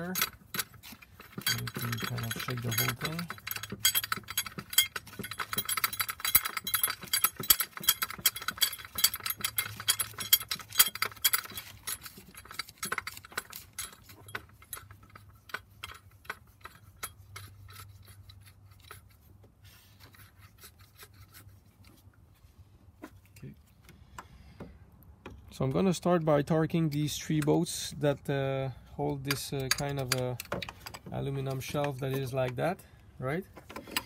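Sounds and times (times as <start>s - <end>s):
metal bolts clicking against bracket: 0.0s - 19.0s, 25.2s - 28.3s, 29.0s - 32.8s, 33.5s - 34.0s.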